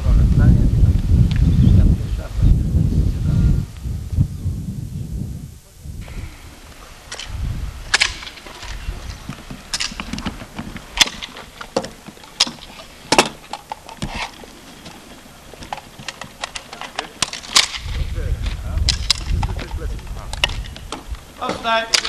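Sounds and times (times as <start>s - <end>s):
rifle shots: 7.9s - 13.4s, 15.7s - 18.1s.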